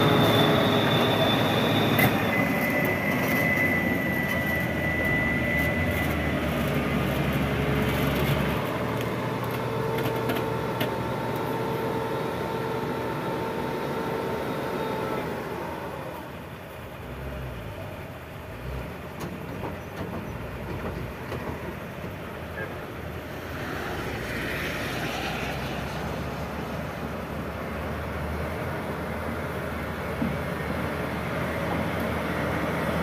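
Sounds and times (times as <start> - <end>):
high whining tones: 0.0 - 16.4
diesel engines of heavy machinery: 0.0 - 33.0.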